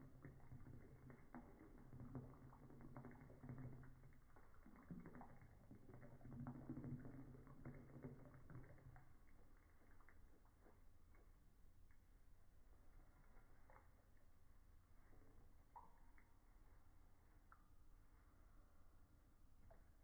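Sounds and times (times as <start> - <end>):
muffled water pattering and splashing: 0.0 - 12.2.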